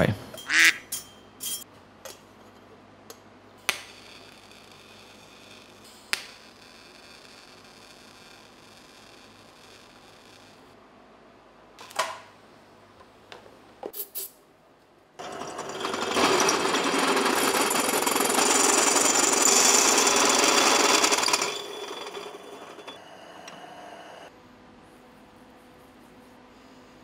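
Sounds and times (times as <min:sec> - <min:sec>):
step drill bit grinding metal: 0:15.2 - 0:23.0.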